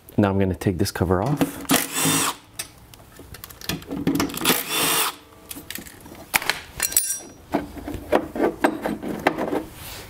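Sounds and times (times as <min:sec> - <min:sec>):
metal parts clinking: 0:06.8 - 0:07.4.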